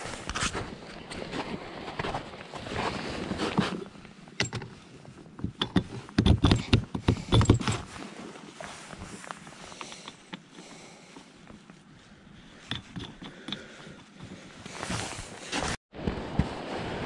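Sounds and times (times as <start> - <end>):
thumps and knocks: 5.4 - 7.9
raft rustling: 13.3 - 15.8.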